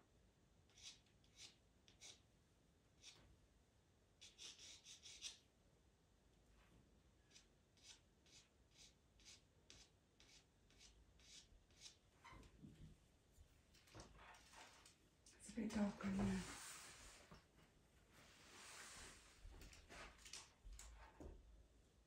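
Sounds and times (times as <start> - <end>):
pencil scratching on paper: 0.7 - 2.3, 3.0 - 3.2, 4.2 - 5.4, 7.3 - 12.0.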